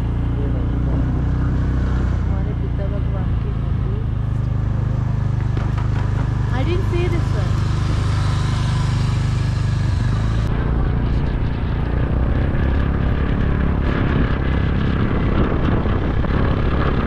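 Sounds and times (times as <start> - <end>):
scooter engine running: 0.0 - 17.0
wind rumbling on microphone: 7.3 - 17.0.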